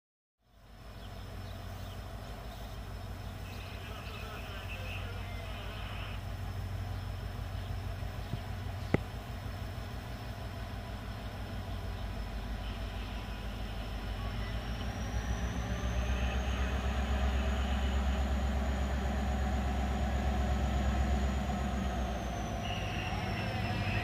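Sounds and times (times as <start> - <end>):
diesel locomotive engine rumble: 0.4 - 24.0
high whine rising in pitch: 11.0 - 24.0.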